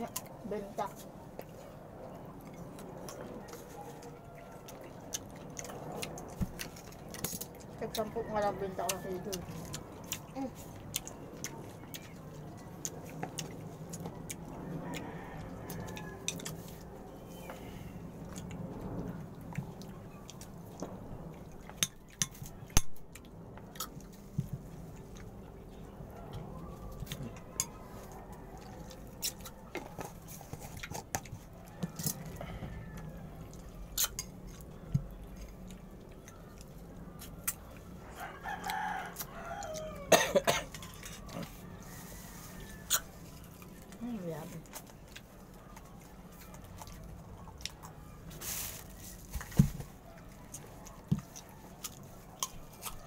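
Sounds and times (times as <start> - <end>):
rooster crowing: 3.4 - 4.9, 14.6 - 18.0, 31.5 - 33.6, 37.9 - 43.4.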